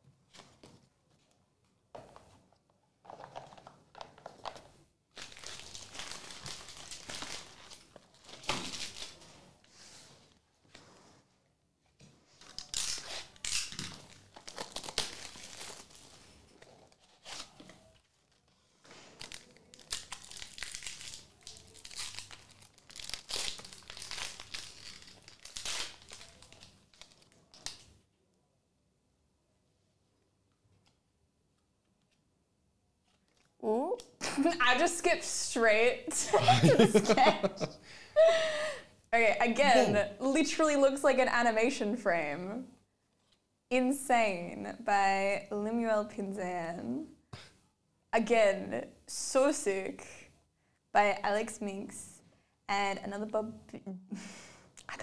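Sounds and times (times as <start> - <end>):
card pack wrappers crinkling: 3.0 - 9.4, 12.4 - 27.9.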